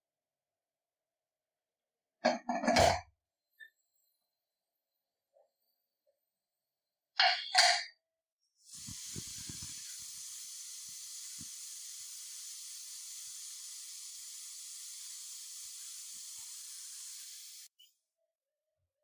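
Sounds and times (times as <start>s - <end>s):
pressure cooker steam hiss: 8.6s - 17.8s.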